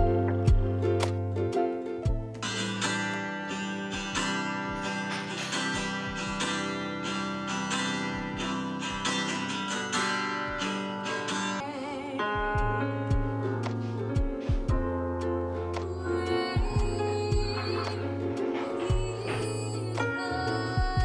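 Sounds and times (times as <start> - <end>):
held bass line: 0.0 - 2.4
soft low beats: 0.0 - 2.5, 12.4 - 15.7, 16.5 - 19.9, 20.7 - 21.0
plucked guitar notes: 0.0 - 21.0.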